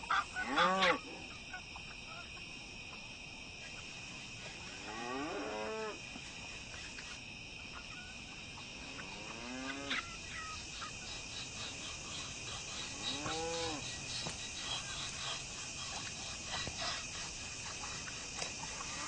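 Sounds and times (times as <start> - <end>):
high insect drone: 0.0 - 19.0
long farm animal calls: 0.1 - 2.2, 7.7 - 19.0.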